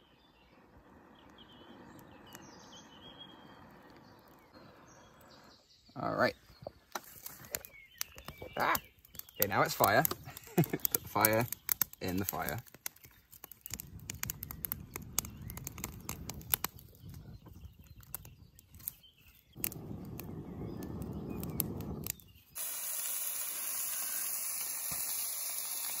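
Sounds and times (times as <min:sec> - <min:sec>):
kindling crackling and snapping: 0:00.5 - 0:05.4, 0:06.2 - 0:26.0
greens hissing in a pan: 0:08.5 - 0:12.6, 0:19.5 - 0:26.0.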